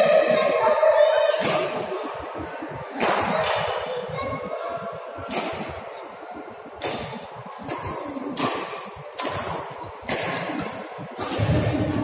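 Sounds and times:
racket smacking shuttlecock: 0:06.8 - 0:11.7.

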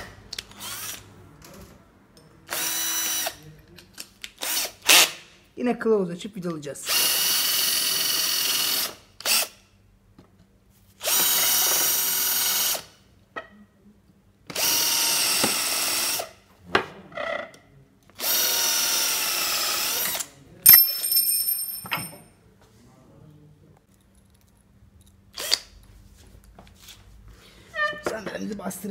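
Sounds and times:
cordless drill drilling into wood: 0:02.5 - 0:03.4, 0:06.9 - 0:09.6, 0:11.0 - 0:12.9, 0:14.5 - 0:16.3, 0:18.2 - 0:20.2
sharp metallic clink: 0:20.7 - 0:22.3.

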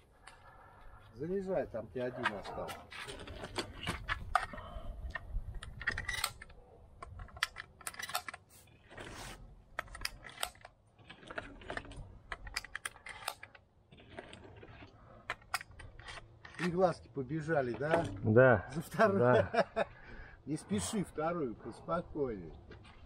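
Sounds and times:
shotgun shells clicking and rattling: 0:02.1 - 0:19.1.

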